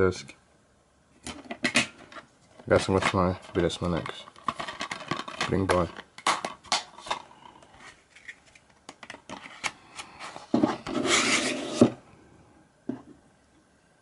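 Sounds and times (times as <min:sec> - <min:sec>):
plastic case sliding into cardboard: 0:09.3 - 0:12.0.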